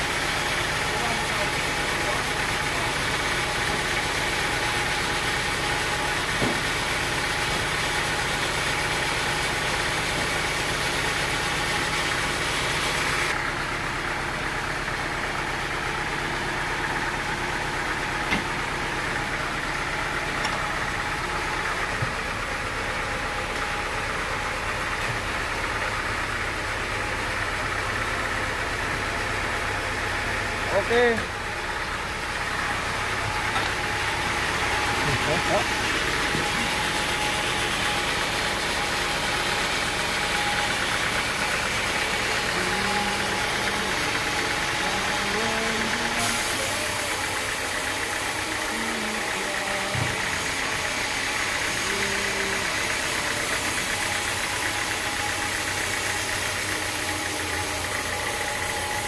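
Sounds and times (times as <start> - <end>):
sawmill motor idling: 0.0 - 59.0.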